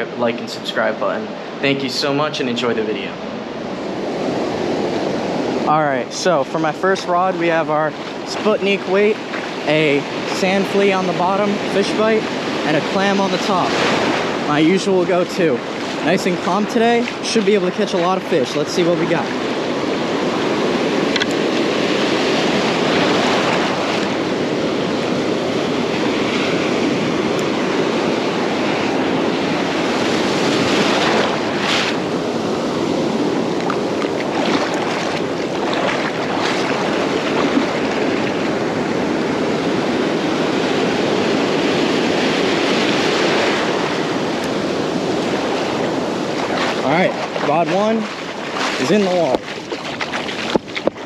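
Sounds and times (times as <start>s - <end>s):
ocean surf breaking: 0.0s - 51.0s
water splashes: 6.1s - 25.1s, 28.4s - 40.0s, 41.1s - 51.0s.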